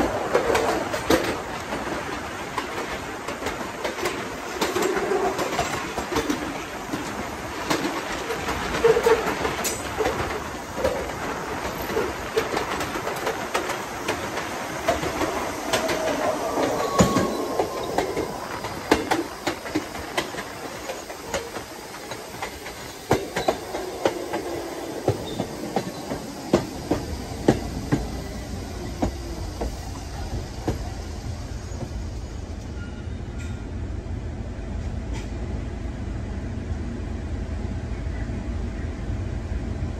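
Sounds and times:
train wheels clicking over rail joints: 0:00.0 - 0:33.7
wheel squeals: 0:14.0 - 0:21.5, 0:25.1 - 0:27.0.

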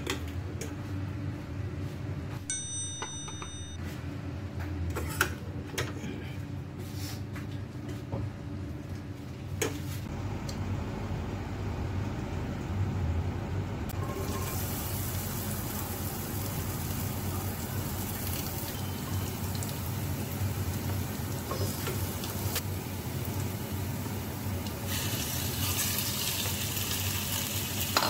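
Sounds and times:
low kitchen hum: 0:00.0 - 0:28.0
onion sizzling in hot oil: 0:14.0 - 0:28.0.

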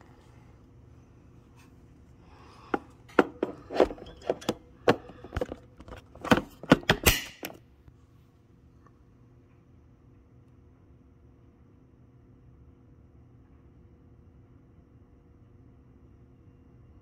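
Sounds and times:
sharp clicks and knocks: 0:02.8 - 0:07.6.

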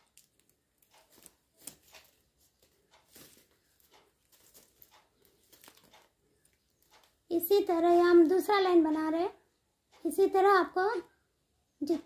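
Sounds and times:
plastic wire rustling and clicking: 0:00.0 - 0:08.6.

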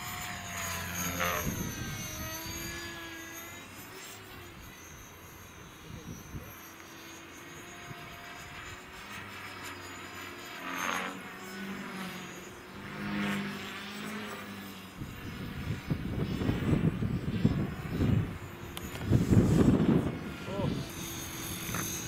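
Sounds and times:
model aircraft buzzing overhead: 0:00.0 - 0:22.0
wind buffeting microphone: 0:01.2 - 0:03.1, 0:15.0 - 0:22.0.

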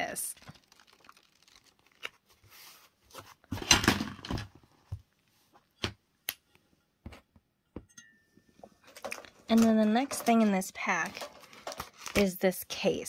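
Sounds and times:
paper rustling: 0:00.4 - 0:03.7, 0:08.9 - 0:12.3.

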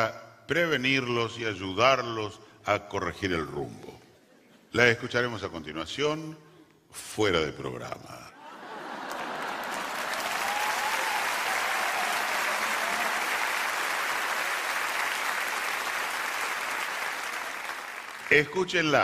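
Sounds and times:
audience applauding: 0:08.6 - 0:18.8.

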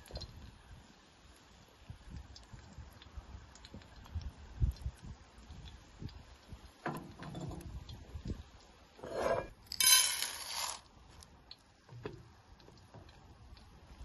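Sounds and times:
pan scraping across stovetop: 0:09.0 - 0:10.8
raisins rattling into pan: 0:09.7 - 0:10.8.

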